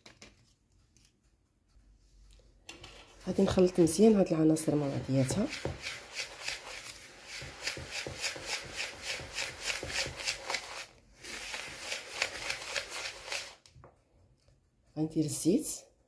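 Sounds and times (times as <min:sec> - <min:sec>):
whisk stirring dry semolina: 0:02.7 - 0:13.7.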